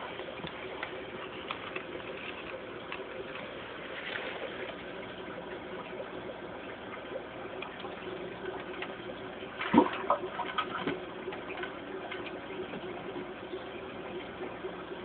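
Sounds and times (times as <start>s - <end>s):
aquarium filter running water: 0.0s - 15.0s.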